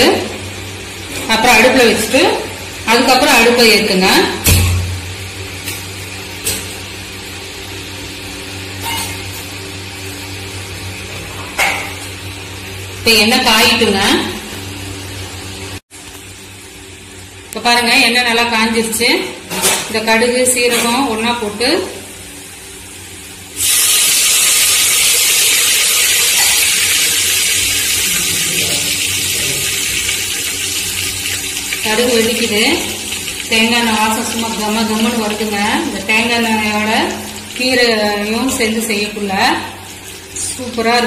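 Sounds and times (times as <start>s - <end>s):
seeds sizzling in hot oil: 23.4s - 38.2s.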